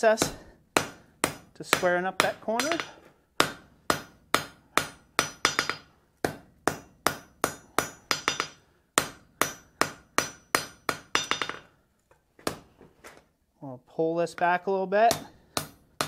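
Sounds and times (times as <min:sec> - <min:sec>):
hammer striking metal on anvil: 0:00.2 - 0:11.7, 0:15.1 - 0:15.9.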